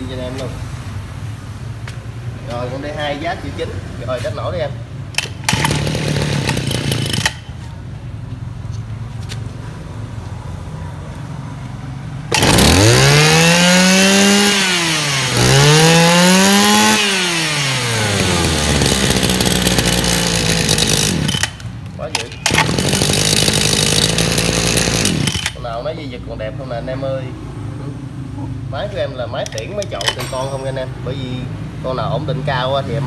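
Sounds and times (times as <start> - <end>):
brush-cutter engine idling and revving: 5.1 - 7.7, 12.3 - 25.8, 29.5 - 30.8.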